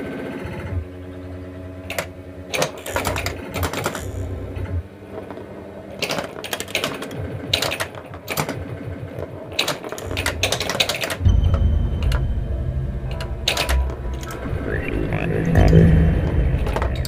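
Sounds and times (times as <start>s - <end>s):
low steady hum: 0.0s - 6.4s, 8.2s - 17.0s
pinball machine clicks and clacks: 1.9s - 4.3s, 6.0s - 12.2s, 13.1s - 14.3s.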